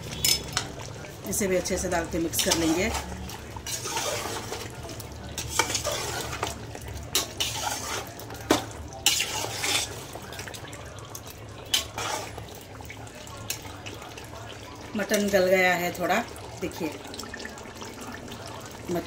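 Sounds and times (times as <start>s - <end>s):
gravy sizzling: 0.0s - 19.0s
metal spoon scraping pot: 2.3s - 4.7s, 5.4s - 6.5s, 7.1s - 10.1s, 11.7s - 12.4s.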